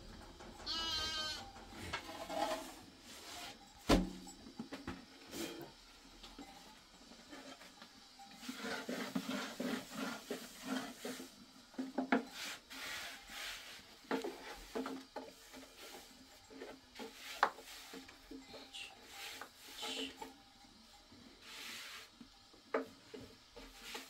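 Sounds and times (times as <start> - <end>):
rolling pin rolling dough: 7.5 - 18.2.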